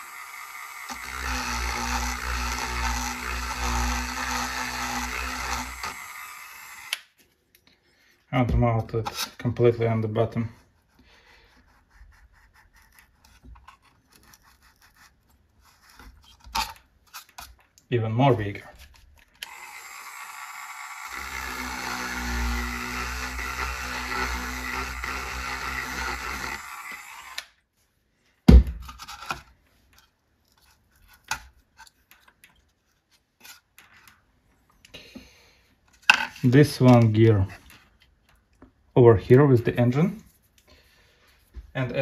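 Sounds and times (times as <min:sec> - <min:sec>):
sharp knock: 0:28.5 - 0:28.8.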